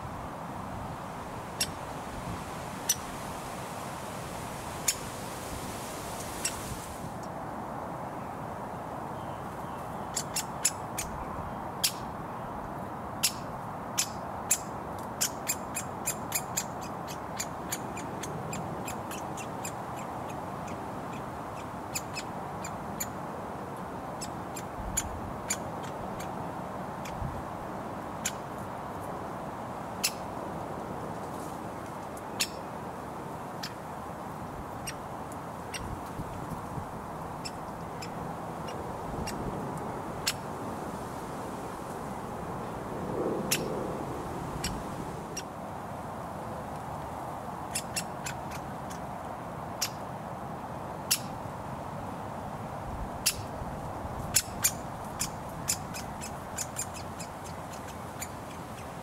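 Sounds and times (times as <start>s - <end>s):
woodpecker calls: 10.1s - 11.2s, 14.0s - 23.2s, 24.2s - 26.4s, 32.4s - 32.7s, 34.8s - 35.0s, 35.7s - 36.0s, 37.4s - 39.5s, 43.5s - 43.7s, 47.7s - 49.0s, 54.2s - 59.0s
road traffic hum: 16.7s - 59.0s.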